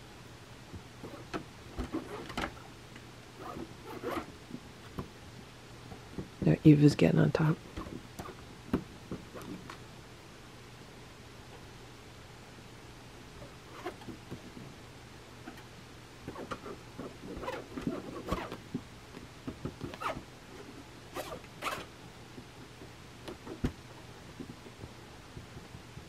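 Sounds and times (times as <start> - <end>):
cat claws scratching fabric: 1.0 - 2.7, 3.4 - 4.3, 16.3 - 18.6.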